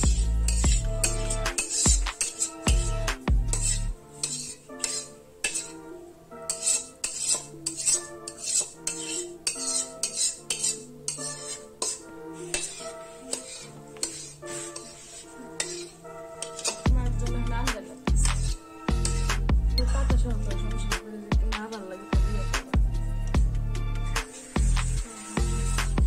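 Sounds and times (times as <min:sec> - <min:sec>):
metal spoon scraping metal pan: 0:00.0 - 0:21.0, 0:24.0 - 0:26.0
background music: 0:00.0 - 0:26.0.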